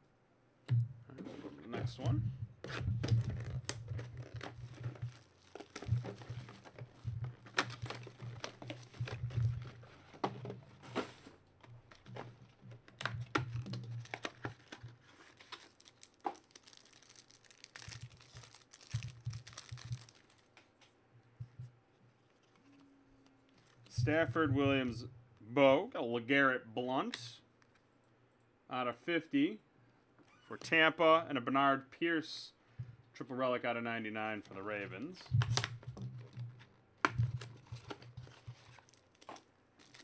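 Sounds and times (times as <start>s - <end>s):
cards being handled: 1.4s - 20.7s, 34.4s - 40.0s
foil wrapper crinkling and tearing: 3.0s - 10.2s, 13.2s - 20.6s, 37.4s - 40.0s.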